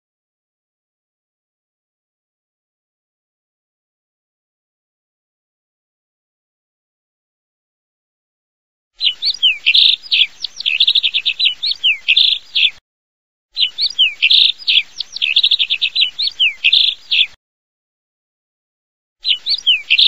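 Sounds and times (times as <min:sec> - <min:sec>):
bird song chirps and trills: 0:09.0 - 0:12.8, 0:13.6 - 0:17.4, 0:19.2 - 0:20.0.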